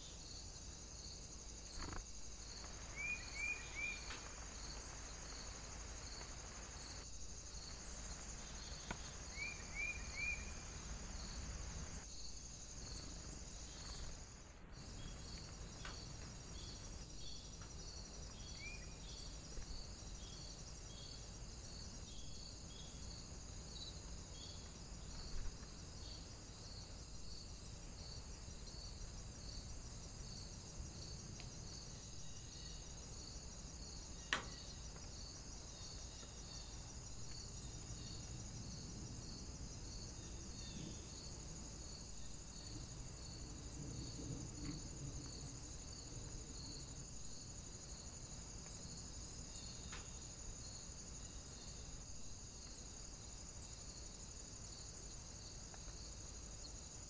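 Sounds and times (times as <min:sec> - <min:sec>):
insects trilling and chirping: 0:00.0 - 0:57.0.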